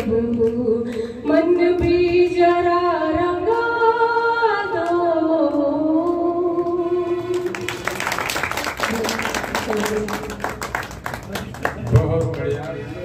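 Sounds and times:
woman singing: 0.0 - 7.8, 8.8 - 10.6
audience applause: 7.3 - 13.0.

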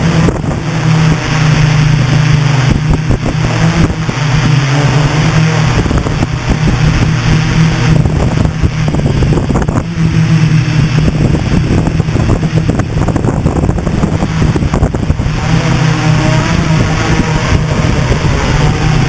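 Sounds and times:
drone motors humming: 0.0 - 19.0
wind buffeting microphone: 0.0 - 19.0.

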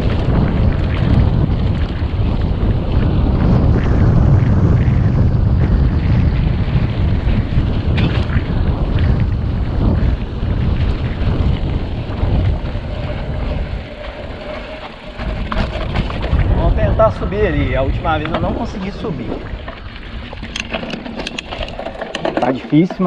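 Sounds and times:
mountain bike rattling: 0.0 - 23.0
wind buffeting microphone: 0.0 - 23.0
wheels knocking on roots and stones: 5.6 - 23.0.

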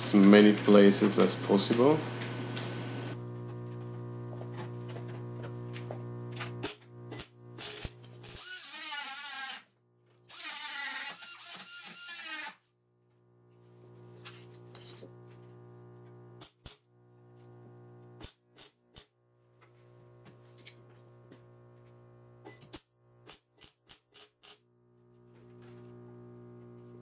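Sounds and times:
welding crackle: 6.6 - 9.6.

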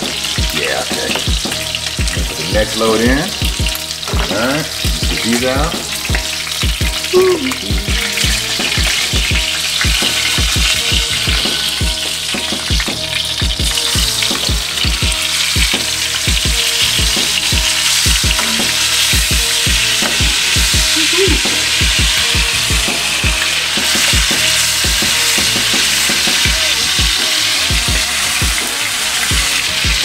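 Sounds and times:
chicken sizzling in oil: 0.0 - 30.0
soft low thumps: 1.2 - 2.7, 3.4 - 12.0.

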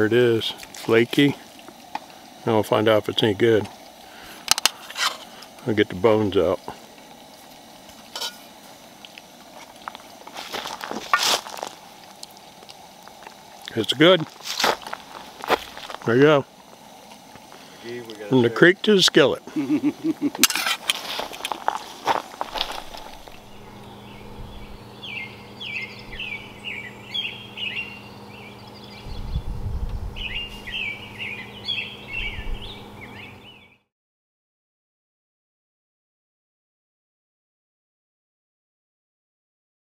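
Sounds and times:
steady low hum: 0.0 - 33.8
fork scraping on metal plate: 8.1 - 8.4, 20.4 - 21.0
songbird chirping: 23.4 - 29.5, 30.2 - 33.8.

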